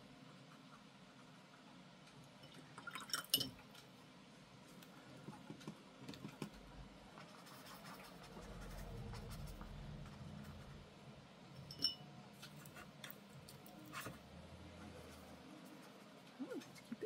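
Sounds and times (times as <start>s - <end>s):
paintbrush scratching on paper: 7.2s - 10.7s
soft low rumble: 8.2s - 11.3s.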